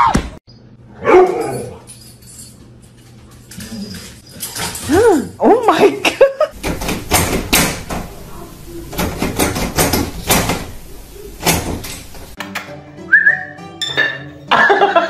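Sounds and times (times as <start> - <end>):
door knocking in frame: 6.6 - 12.2
door handle rattling: 6.6 - 12.4.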